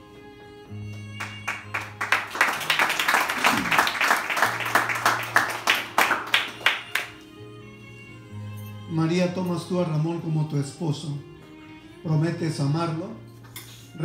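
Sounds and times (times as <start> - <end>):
people applauding: 0.8 - 7.3.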